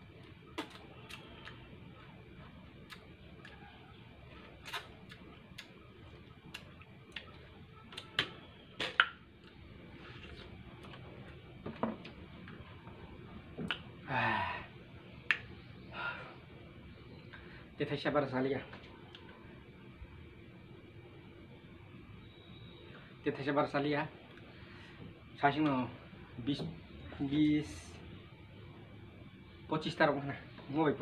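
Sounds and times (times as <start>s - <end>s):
lip smacks and sucking: 0.5s - 1.6s, 2.8s - 3.6s, 4.4s - 5.8s, 6.4s - 11.0s, 13.6s - 13.9s.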